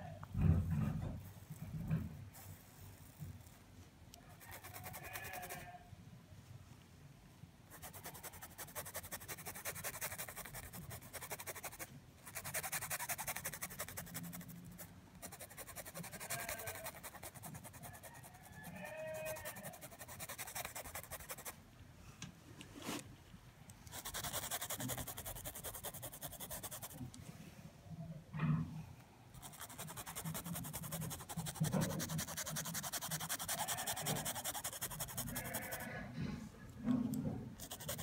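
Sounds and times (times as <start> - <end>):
paintbrush scrubbing on cloth: 7.8 - 21.6, 23.9 - 27.0, 29.4 - 35.9, 37.6 - 38.0.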